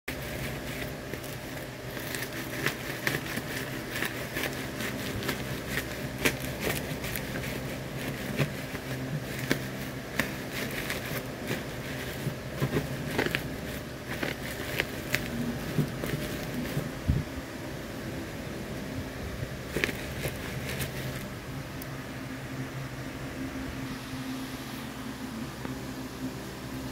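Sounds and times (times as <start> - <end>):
bubble wrap crinkling: 0.1 - 17.2, 19.6 - 21.3
steady low hum: 0.1 - 26.9.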